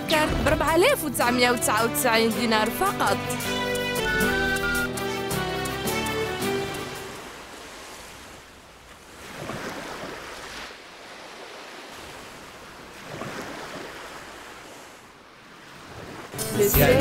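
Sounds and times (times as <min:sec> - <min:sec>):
sea waves washing on beach: 0:06.1 - 0:16.8.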